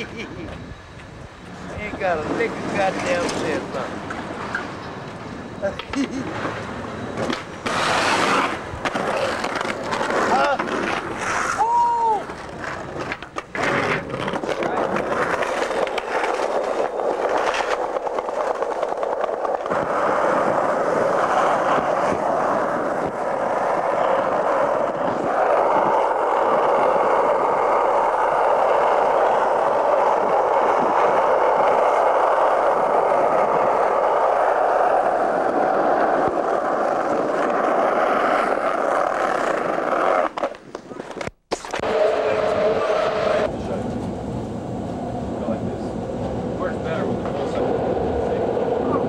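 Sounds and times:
skateboard wheels rolling on pavement: 0.0s - 49.0s.

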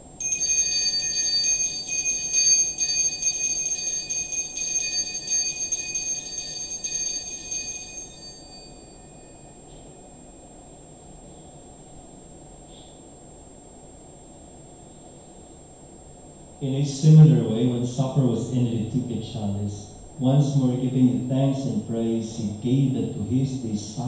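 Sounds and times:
altar bells ringing rapidly: 0.0s - 9.4s.

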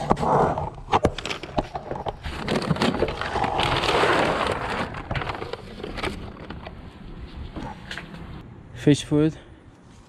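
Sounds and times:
plastic bags and boxes rustling: 1.0s - 7.8s.

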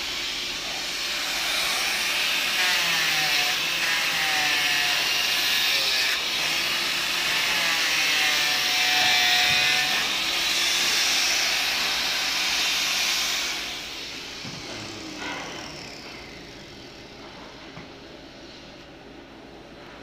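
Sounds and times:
workshop background noise: 0.0s - 20.0s.

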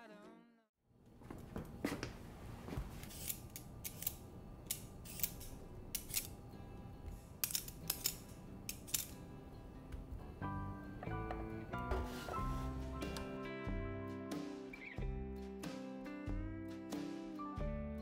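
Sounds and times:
peeler scraping potato: 3.0s - 6.4s.

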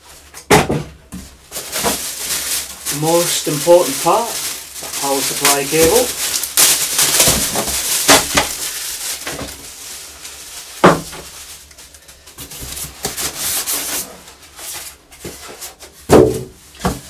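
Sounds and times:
plastic wrapping rustling: 1.0s - 17.0s
knock: 16.1s - 17.0s.

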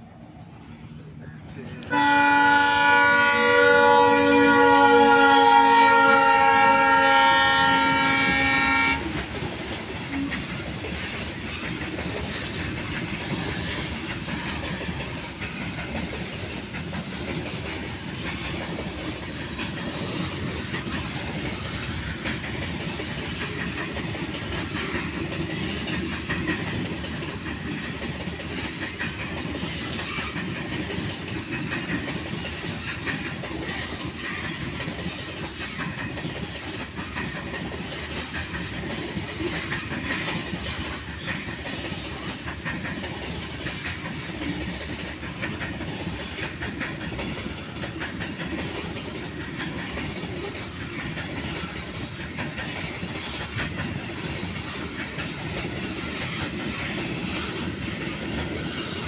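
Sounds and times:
freight train wheels on rails: 0.0s - 59.0s
locomotive horn: 1.8s - 9.2s.

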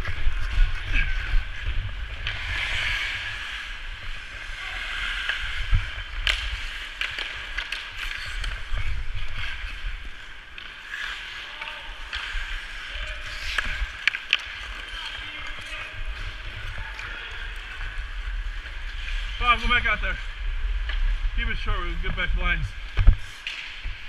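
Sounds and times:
ice skate blades scraping: 0.0s - 19.7s
hockey sticks and puck clacking: 0.0s - 24.0s.

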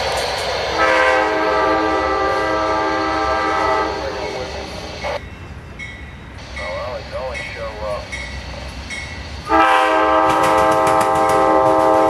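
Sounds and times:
train rumble: 0.0s - 12.0s
locomotive air horn chord: 0.7s - 4.4s, 9.4s - 12.0s.

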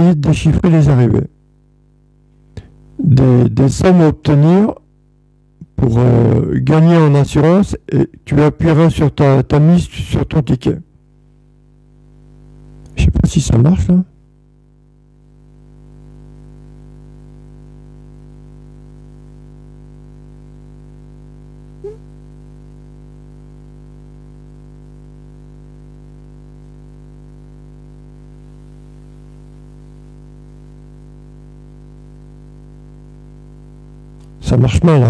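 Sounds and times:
electrical hum: 0.0s - 35.0s
brief blip: 21.8s - 22.1s.

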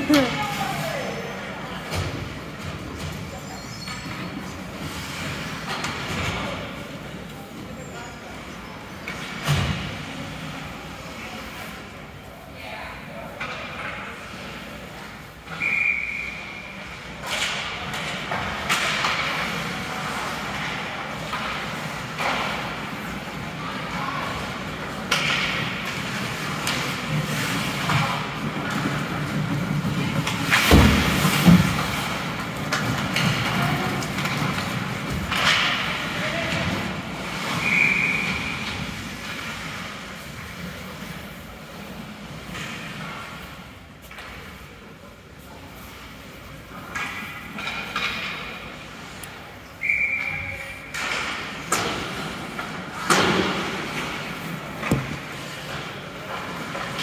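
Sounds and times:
spectators chattering: 0.0s - 9.2s.

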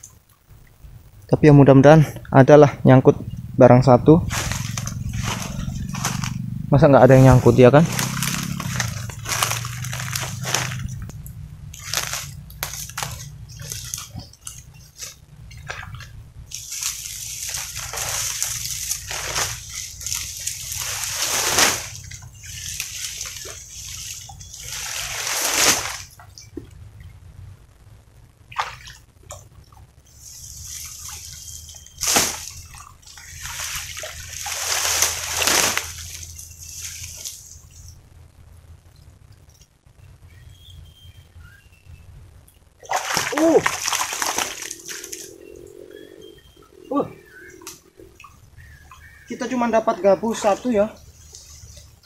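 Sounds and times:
dry palm fronds crackling: 0.0s - 27.2s, 28.4s - 41.8s, 42.4s - 52.0s
shallow water sloshing and splashing: 4.3s - 6.4s, 11.8s - 26.5s, 30.4s - 37.4s, 42.8s - 45.5s.

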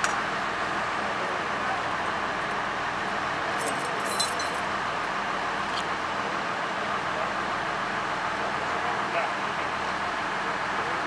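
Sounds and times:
diesel engine idling: 0.0s - 11.0s
light metallic clinks: 3.6s - 4.6s.

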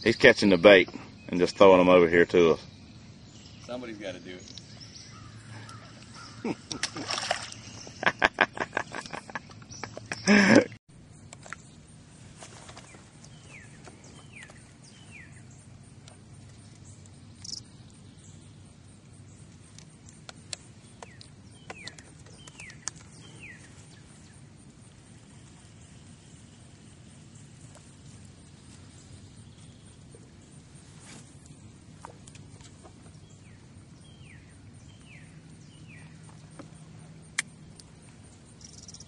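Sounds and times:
bird chirping: 0.0s - 24.7s, 32.3s - 36.8s, 38.4s - 39.0s.

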